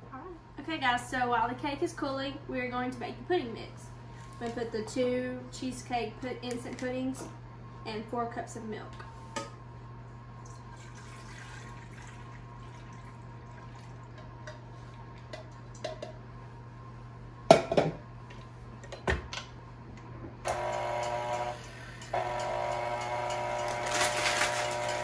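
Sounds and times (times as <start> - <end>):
milk pouring into metal bowl: 10.5 - 14.2
stand mixer motor whine: 20.5 - 25.0.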